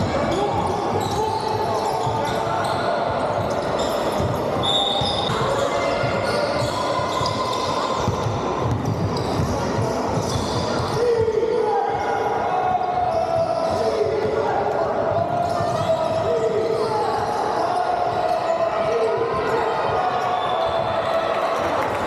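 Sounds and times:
players calling out: 0:00.0 - 0:07.8
sneakers squeaking: 0:00.0 - 0:12.2, 0:15.1 - 0:21.8.

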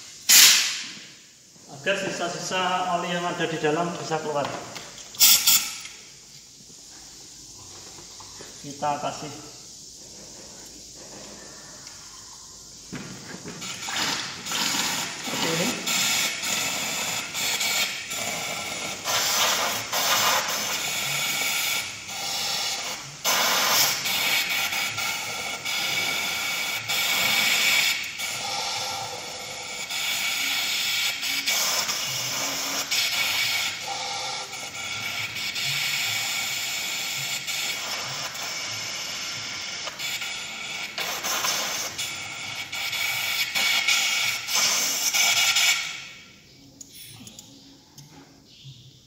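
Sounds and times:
compressed air blow gun hissing: 0:00.0 - 0:02.0, 0:05.1 - 0:06.1, 0:12.6 - 0:34.0, 0:35.3 - 0:45.6.

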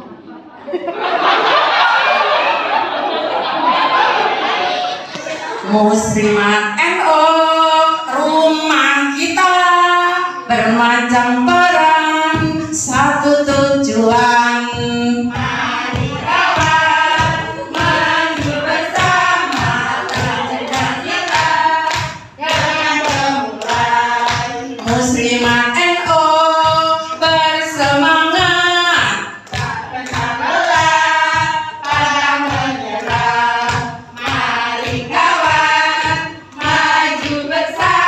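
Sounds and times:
voice on a microphone: 0:05.0 - 0:16.2, 0:24.5 - 0:29.4
women singing a chant-song: 0:05.1 - 0:38.0
low thumping beat: 0:11.1 - 0:38.0.

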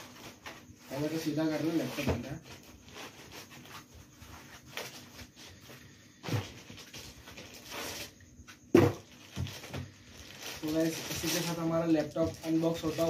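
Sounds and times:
foam rubbing and scraping: 0:00.0 - 0:08.2.

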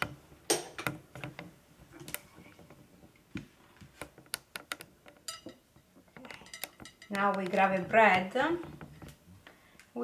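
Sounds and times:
kitchen utensils clicking and knocking: 0:00.0 - 0:01.5, 0:04.3 - 0:09.0.

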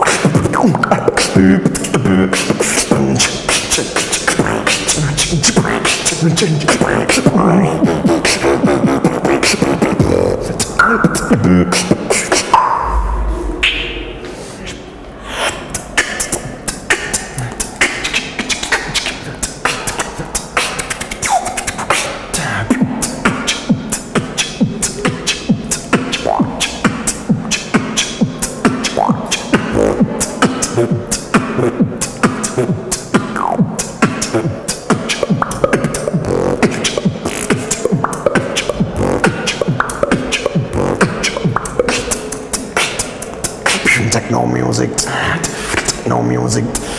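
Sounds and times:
person beatboxing: 0:00.0 - 0:46.9
low bass tone: 0:12.6 - 0:14.9.

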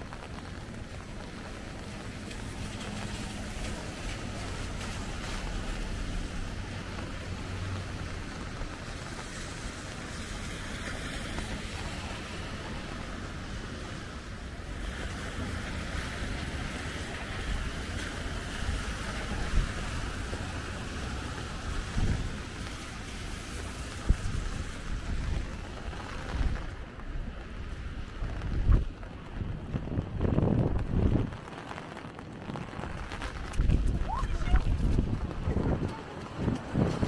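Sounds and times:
rain hiss: 0:00.0 - 0:35.7
low traffic rumble: 0:00.0 - 0:37.0
tyres on wet pavement: 0:00.0 - 0:37.0.

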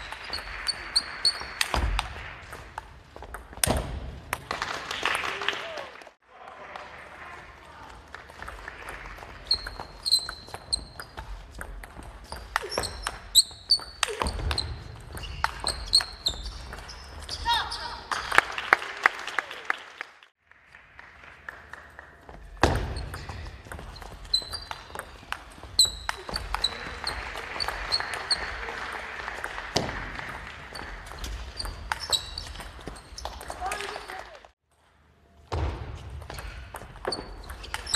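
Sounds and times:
shoes squeaking on floor: 0:09.4 - 0:18.1, 0:22.6 - 0:28.4, 0:30.8 - 0:34.3, 0:36.4 - 0:37.9.

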